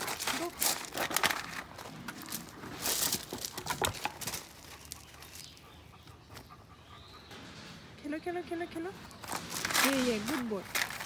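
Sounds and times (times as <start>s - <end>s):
dog pawing ball over gravel: 0.0s - 5.5s, 9.1s - 11.0s.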